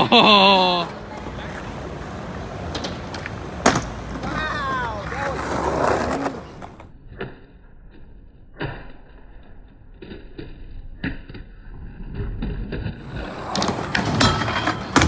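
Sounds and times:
skateboard wheels rolling: 0.0 - 7.0, 11.5 - 15.0
skateboard popping and landing: 0.8 - 7.4, 10.9 - 15.0.

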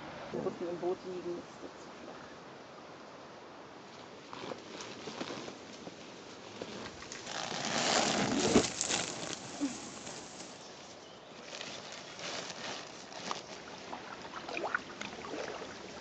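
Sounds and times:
leaves and twigs crackling: 3.9 - 16.0.

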